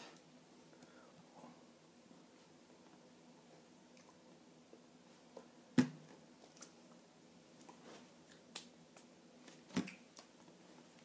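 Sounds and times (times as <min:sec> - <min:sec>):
faint steady hum: 0:00.0 - 0:11.0
hands slapping and tapping: 0:08.5 - 0:10.3.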